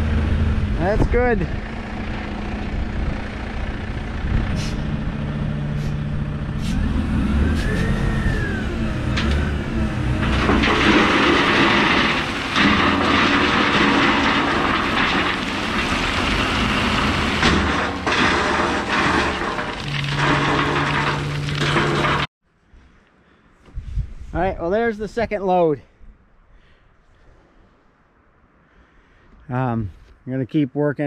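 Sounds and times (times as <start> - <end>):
diesel truck engine running: 0.0 - 22.3
gravel pouring out: 10.2 - 22.3.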